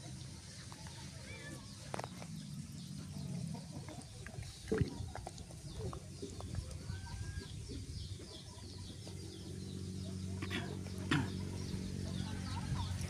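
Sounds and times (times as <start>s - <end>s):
chickens clucking: 1.8s - 13.0s.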